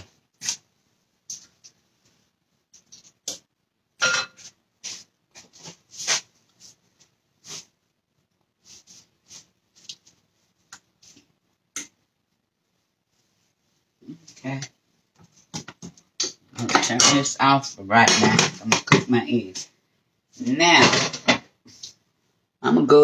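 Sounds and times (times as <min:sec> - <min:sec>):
paper towel wiping cooktop: 0:04.5 - 0:07.8, 0:08.6 - 0:10.6.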